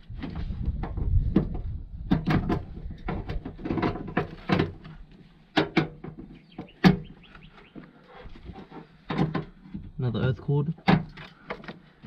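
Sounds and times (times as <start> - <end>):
metal and plastic parts rattling: 1.3 - 5.0, 8.2 - 10.0.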